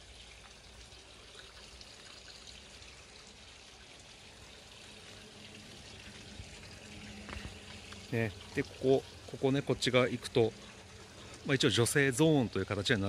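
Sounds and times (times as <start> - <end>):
water pouring into rock bath: 0.0 - 13.0.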